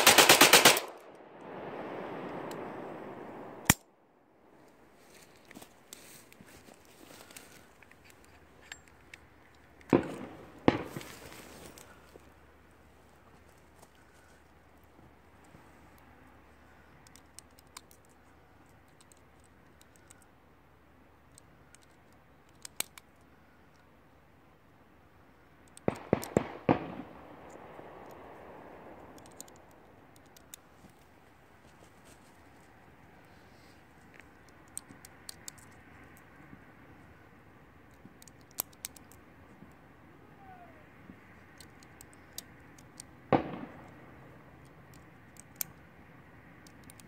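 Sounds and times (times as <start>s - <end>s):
distant gunshots: 0.0s - 3.8s, 9.9s - 11.4s, 25.9s - 29.2s, 43.3s - 44.4s.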